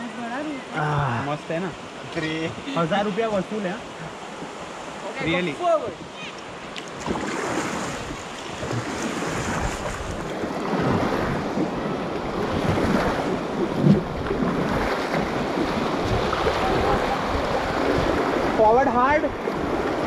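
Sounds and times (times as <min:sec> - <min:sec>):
river water rushing: 0:00.0 - 0:20.0
wind buffeting microphone: 0:06.9 - 0:20.0.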